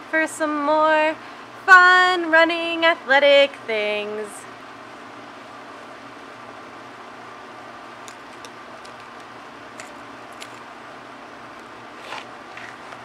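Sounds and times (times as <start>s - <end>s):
outdoor hum and hiss: 0.0s - 13.0s.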